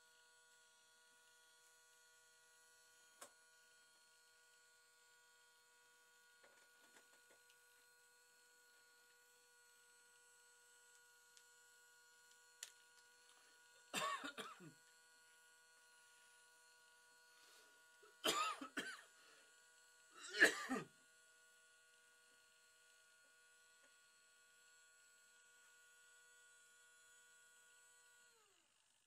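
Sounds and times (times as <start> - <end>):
person coughing: 13.9 - 14.8, 18.2 - 19.1, 20.2 - 20.9.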